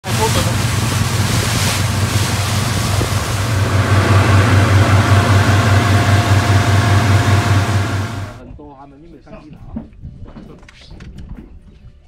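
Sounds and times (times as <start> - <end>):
boat engine droning: 0.0 - 8.4
wind and water hiss: 0.0 - 8.4.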